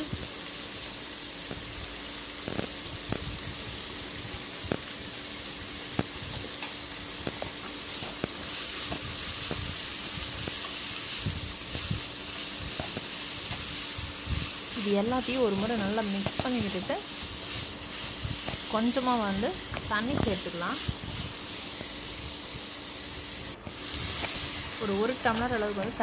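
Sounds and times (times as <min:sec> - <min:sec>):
vegetables sizzling in oil: 0:00.0 - 0:26.0
small pops and crackles: 0:02.4 - 0:03.3, 0:05.9 - 0:09.8.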